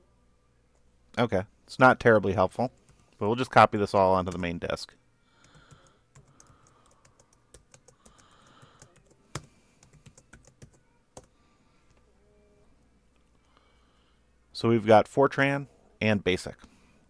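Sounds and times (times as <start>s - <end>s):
keyboard typing: 5.4s - 11.3s.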